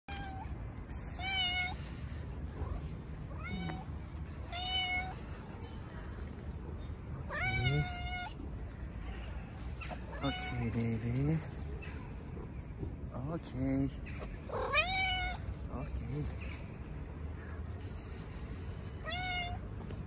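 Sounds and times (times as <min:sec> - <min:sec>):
cat meowing: 0:00.1 - 0:00.6, 0:01.2 - 0:02.4, 0:03.3 - 0:05.5, 0:07.2 - 0:08.4, 0:09.8 - 0:10.8, 0:14.4 - 0:15.5, 0:19.0 - 0:19.6.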